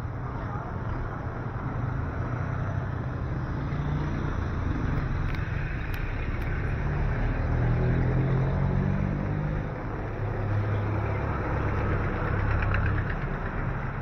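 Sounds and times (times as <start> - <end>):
vehicle engines passing: 0.0 - 14.0.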